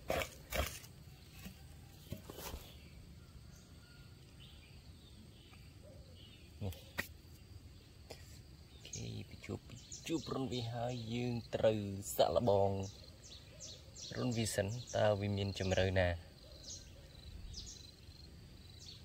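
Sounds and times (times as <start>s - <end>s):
hoe chopping into soil: 0.0s - 2.8s
faint scraping of earth: 0.0s - 3.0s, 6.6s - 7.5s, 8.1s - 8.5s.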